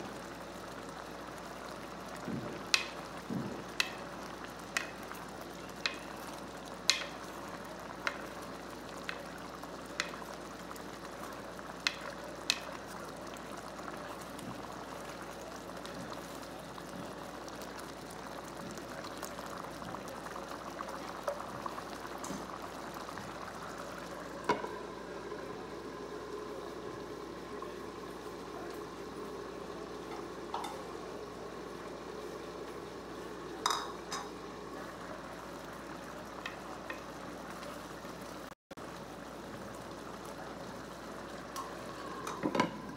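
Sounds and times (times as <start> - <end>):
congee bubbling: 0.0 - 42.9
ladle clinking against pot: 33.6 - 34.3.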